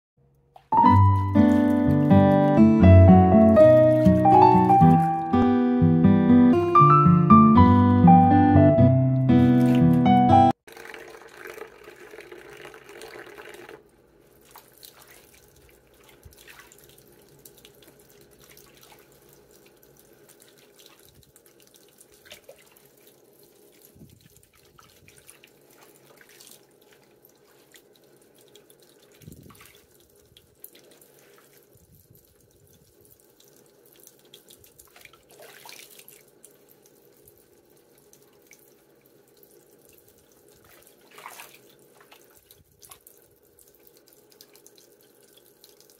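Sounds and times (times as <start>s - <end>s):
bathwater sloshing and dripping: 0.6s - 2.7s, 9.4s - 10.0s, 10.6s - 45.9s
small water splashes: 10.7s - 45.9s.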